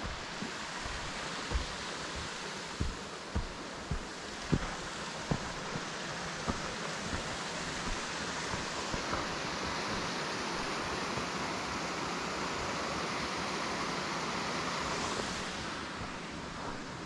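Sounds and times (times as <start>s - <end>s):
water rushing down rock: 0.0s - 11.8s.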